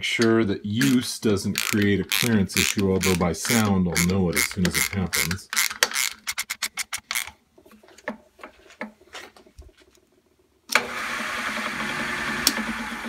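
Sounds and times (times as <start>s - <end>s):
spindle lock clicking: 0.8s - 1.0s, 1.6s - 7.3s.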